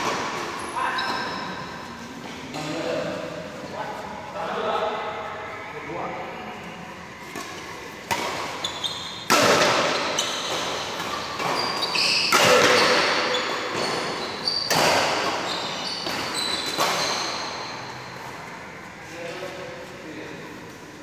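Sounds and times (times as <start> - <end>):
sneakers squeaking on court: 0.0 - 1.9, 7.4 - 18.3
racket striking shuttlecock: 7.3 - 17.4.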